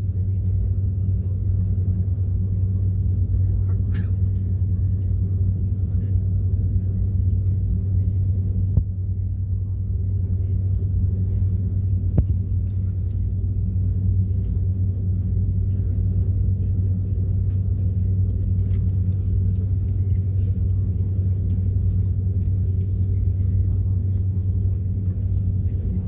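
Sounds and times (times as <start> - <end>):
jet engines idling in cabin: 0.0 - 26.0.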